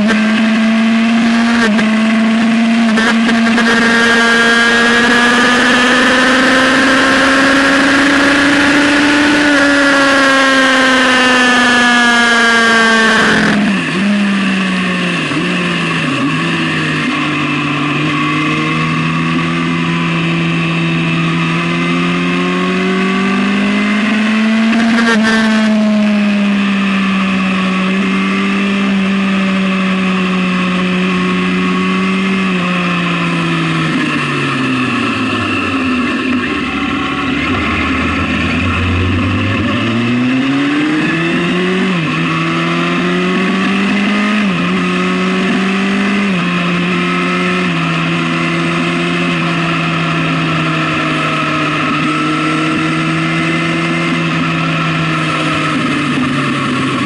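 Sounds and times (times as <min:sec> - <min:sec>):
motorcycle engine revving: 0:00.0 - 0:57.0
wind rush: 0:35.8 - 0:41.9.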